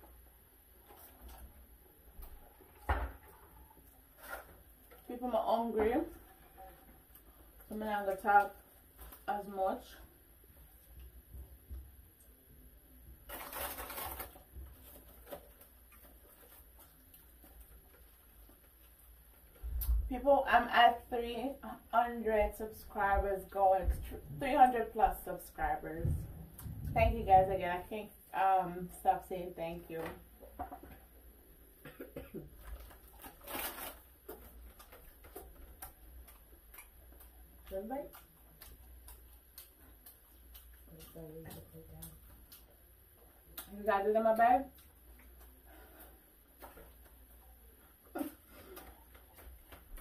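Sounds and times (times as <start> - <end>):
clicks and rustles of food: 0.0 - 5.2, 13.2 - 20.1, 32.0 - 50.0
paper wrapping crinkling: 0.8 - 5.2, 13.2 - 19.7, 32.5 - 41.0.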